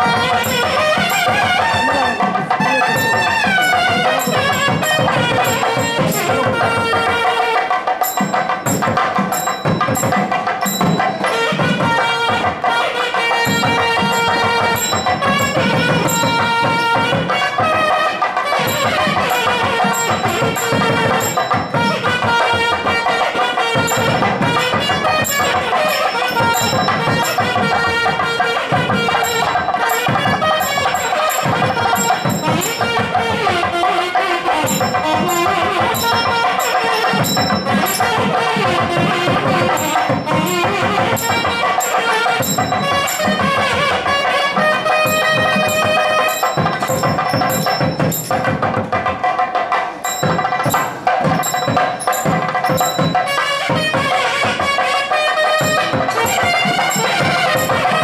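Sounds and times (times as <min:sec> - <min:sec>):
double-reed pipe melody: 0:00.0 - 0:58.0
drum strokes: 0:00.0 - 0:58.0.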